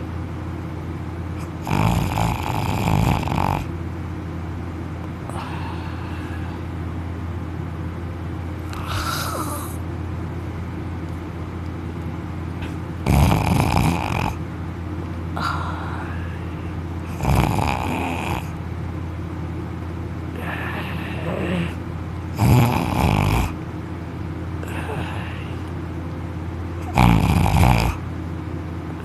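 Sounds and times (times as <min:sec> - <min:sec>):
man snoring: 0:01.4 - 0:03.7, 0:08.7 - 0:09.8, 0:13.0 - 0:14.4, 0:17.1 - 0:18.6, 0:20.4 - 0:21.8, 0:22.4 - 0:23.6, 0:24.6 - 0:25.6, 0:26.8 - 0:28.0.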